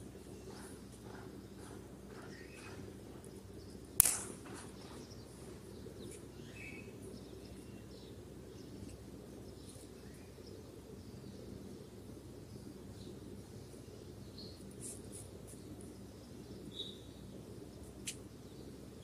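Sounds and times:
small birds chirping: 0.0 - 19.0
steady low hum: 0.0 - 19.0
sharp click: 4.0 - 4.6.

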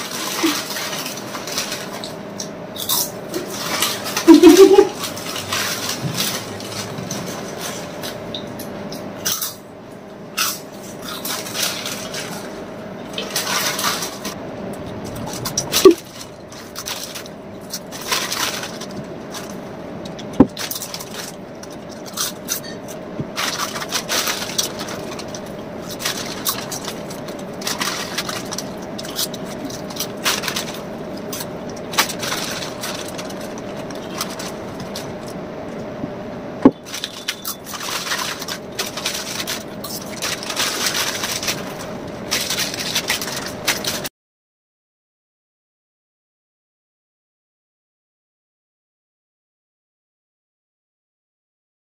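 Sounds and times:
foil packets crinkling: 0.0 - 8.3, 10.4 - 14.4, 15.0 - 35.8, 36.8 - 44.1
potato chips crunching: 0.0 - 8.3, 10.3 - 35.8, 36.8 - 44.1
faint steady hum: 0.0 - 44.1.

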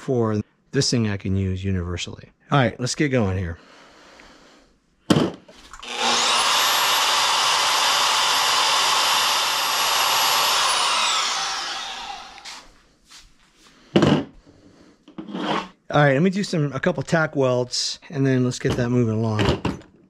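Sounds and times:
band saw cutting steel: 5.8 - 12.7.

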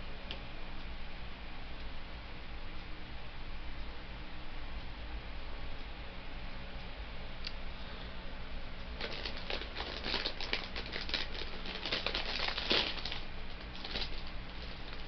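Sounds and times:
chip bag crinkling: 9.0 - 15.0.

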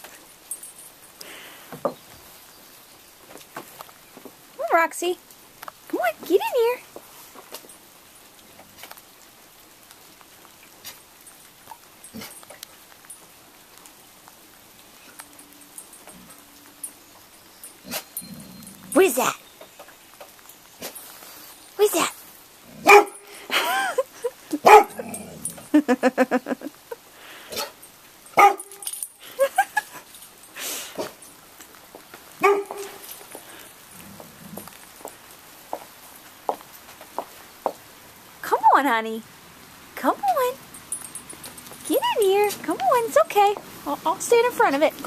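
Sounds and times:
dog yipping: 22.8 - 23.2, 24.6 - 25.0, 28.4 - 28.9, 32.4 - 33.2
dog barking: 22.8 - 23.3, 24.6 - 25.1, 27.5 - 27.8, 28.4 - 28.8, 32.4 - 33.1.

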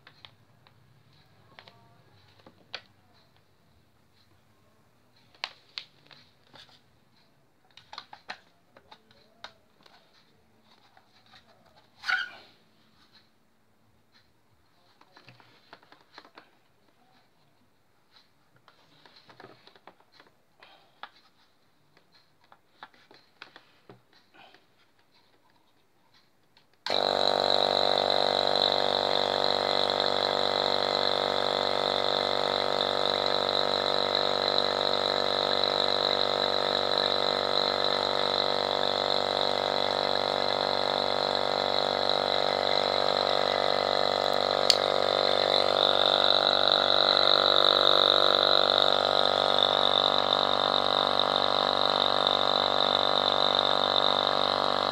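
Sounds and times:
vacuum pump drone and whine: 26.9 - 54.9.

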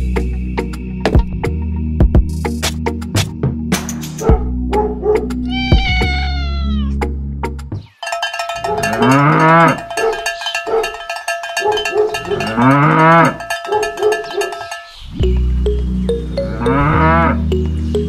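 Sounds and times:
high falling animal call: 5.4 - 7.0
cow mooing: 8.6 - 10.2, 11.7 - 14.6, 16.4 - 17.5.

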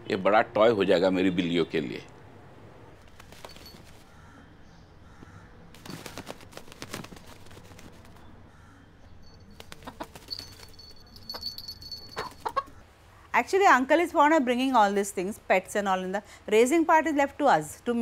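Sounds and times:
rooster flapping wings: 3.0 - 4.1, 5.7 - 8.2, 9.5 - 12.6.

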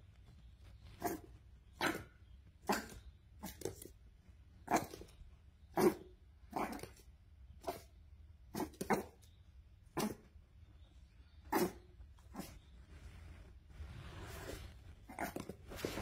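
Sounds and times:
puppy barking: 1.0 - 3.9, 4.6 - 5.1, 5.7 - 7.0, 7.6 - 7.9, 8.5 - 9.3, 9.9 - 10.3, 11.4 - 12.6.

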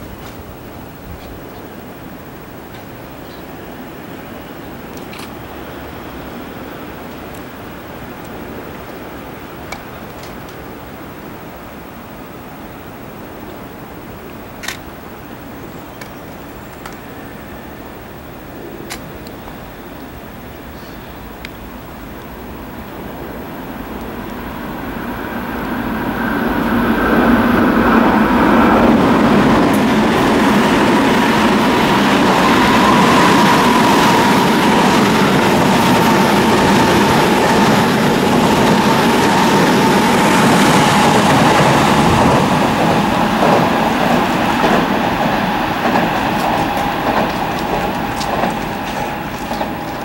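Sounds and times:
train wheels rumbling on rails: 0.0 - 50.0
train whine falling in pitch: 22.4 - 50.0.

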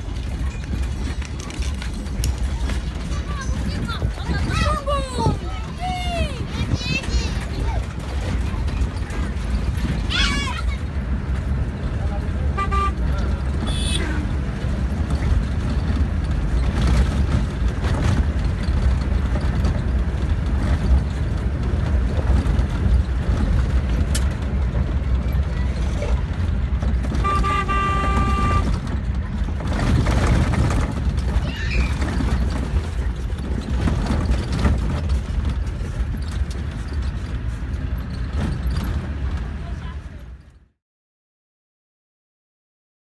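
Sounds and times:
vehicle engine and road rumble: 0.0 - 40.8
car horn toot: 12.5 - 14.3, 27.1 - 28.8.

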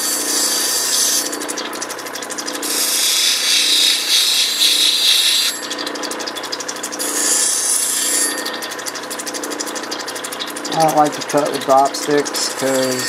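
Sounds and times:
grinding machine motor hum: 0.0 - 13.0
stone grinding on wet wheel: 0.0 - 13.0.

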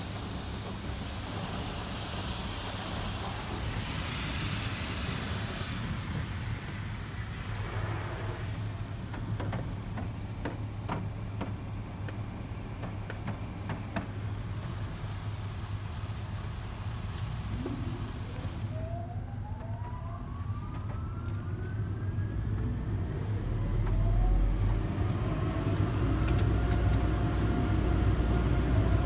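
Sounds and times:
water spray hissing on windows: 0.0 - 22.1.

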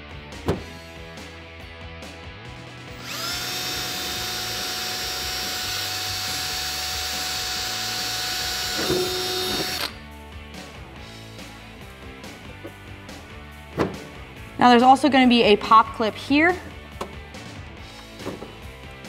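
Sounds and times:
cordless drill whining: 2.9 - 10.0.

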